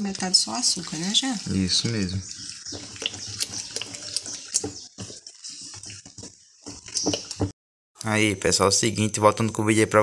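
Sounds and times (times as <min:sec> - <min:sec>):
spoon stirring thick batter: 0:00.0 - 0:07.5
spoon tapping and scraping bowl: 0:02.2 - 0:07.5.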